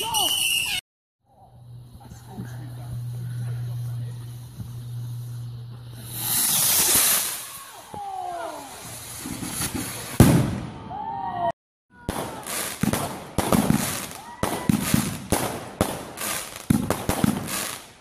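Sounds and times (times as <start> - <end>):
firework bangs and crackles: 1.8 - 11.3, 12.0 - 18.0
firework rocket launching hiss: 1.9 - 10.6, 12.1 - 18.0
firework bursting bang: 8.8 - 10.8, 12.0 - 17.7.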